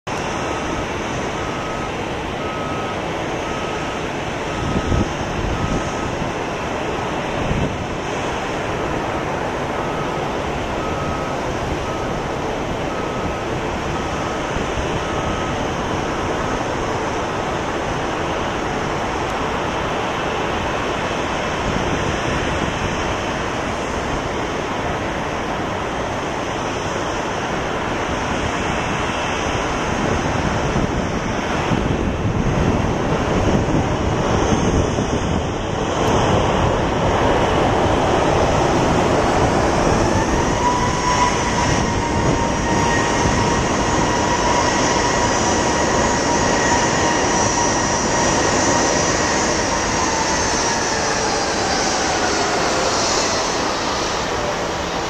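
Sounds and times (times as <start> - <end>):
jet engine whine: 0.0 - 55.0
jet rushing noise: 0.1 - 55.0.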